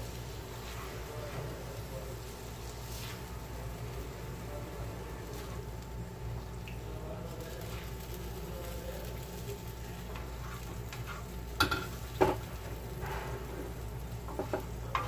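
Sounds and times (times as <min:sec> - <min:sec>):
spatula scraping a griddle: 0:00.5 - 0:01.6, 0:02.7 - 0:03.4, 0:10.0 - 0:15.0.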